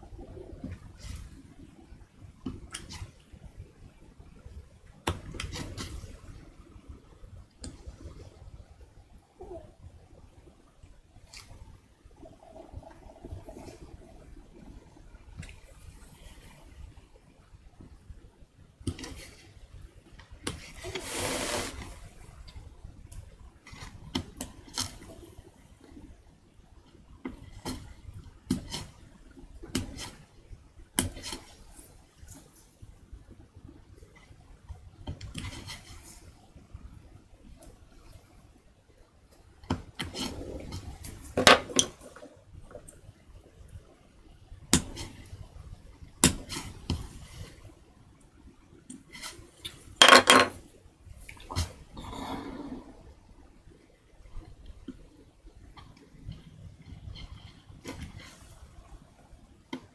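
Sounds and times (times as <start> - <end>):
soft rustle: 20.6 - 22.5, 35.4 - 36.6, 46.4 - 48.0, 48.7 - 50.0, 55.8 - 59.4.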